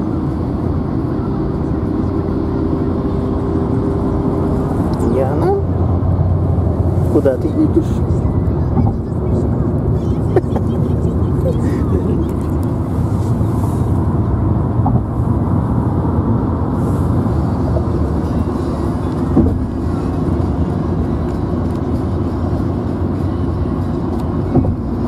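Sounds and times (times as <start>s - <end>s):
car interior road and engine noise: 0.0s - 25.0s
thump: 19.4s - 19.6s.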